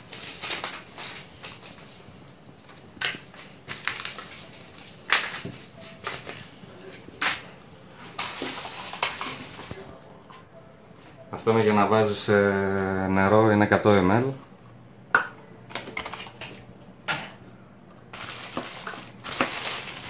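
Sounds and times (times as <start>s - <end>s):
paper and cardboard rustling: 0.0s - 2.2s, 8.1s - 10.0s, 18.1s - 20.0s.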